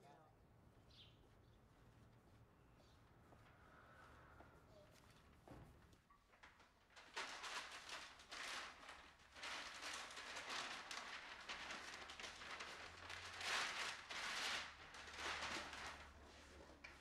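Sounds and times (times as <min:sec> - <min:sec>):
wrapping rustling and crackling: 0:05.1 - 0:17.0.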